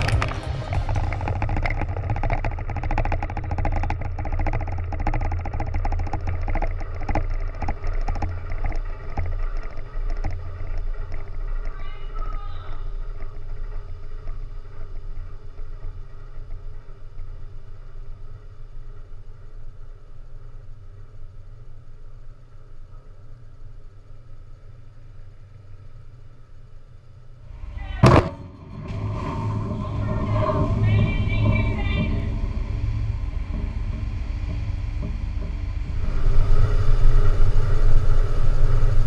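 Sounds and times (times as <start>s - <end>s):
dense crackling: 0.0s - 39.0s
low engine drone: 0.0s - 39.0s
wavering voice-like sound: 29.7s - 32.5s.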